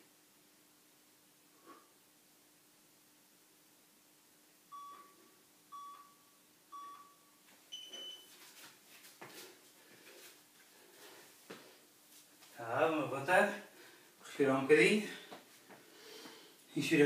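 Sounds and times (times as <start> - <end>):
interval timer beeping: 4.7 - 8.2.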